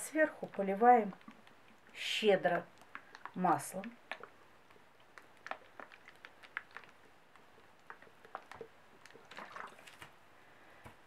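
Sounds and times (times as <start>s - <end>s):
liquid pouring: 0.0s - 10.2s
small clicks and rustles: 2.6s - 10.2s.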